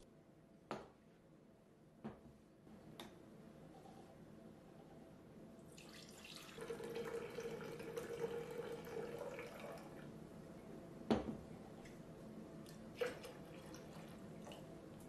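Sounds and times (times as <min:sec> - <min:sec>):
juice pouring and splashing: 0:05.7 - 0:10.0, 0:12.7 - 0:15.0.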